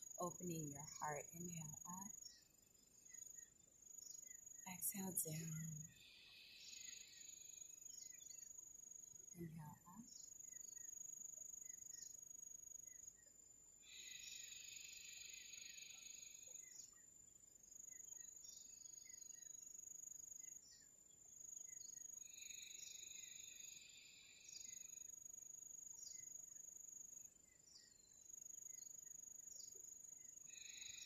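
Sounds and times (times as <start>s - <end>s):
buzzing insect chorus: 13.9s - 16.8s, 21.6s - 25.3s, 29.5s - 31.0s
cricket trill: 30.1s - 31.0s.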